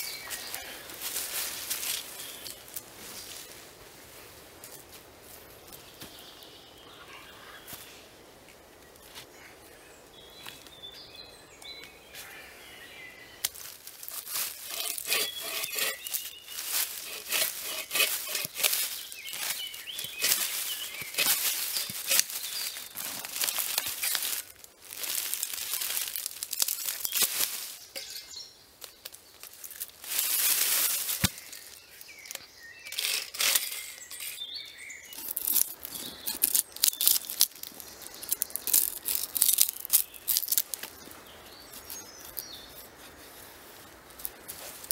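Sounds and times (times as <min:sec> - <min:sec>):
birds chirping: 0:08.8 - 0:24.5, 0:26.9 - 0:42.9
bow saw rasping through log: 0:14.2 - 0:22.2, 0:33.0 - 0:34.1.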